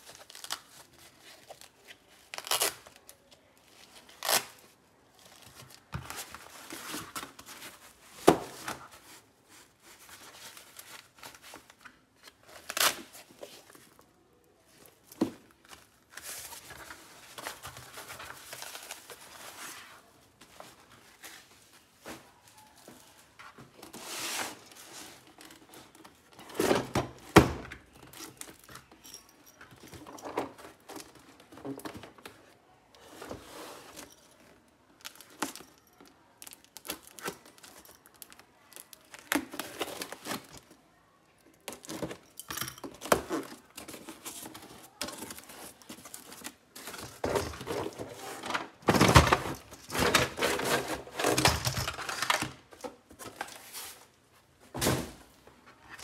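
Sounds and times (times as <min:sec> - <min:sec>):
cardboard tearing and scraping: 0:47.0 - 0:51.5.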